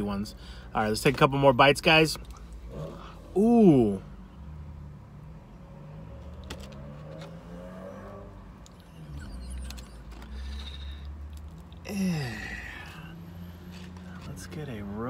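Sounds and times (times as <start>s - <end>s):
person chewing crunchy bread: 9.7s - 14.3s.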